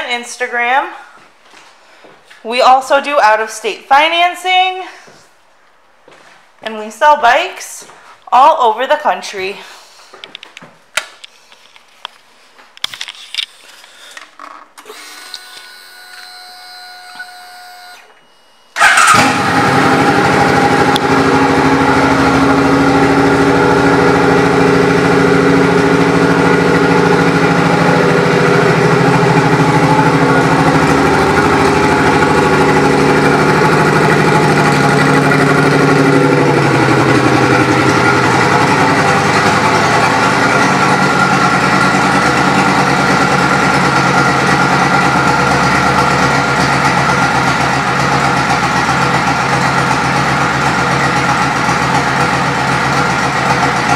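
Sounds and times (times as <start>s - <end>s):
motorcycle engine idling: 18.8s - 53.9s.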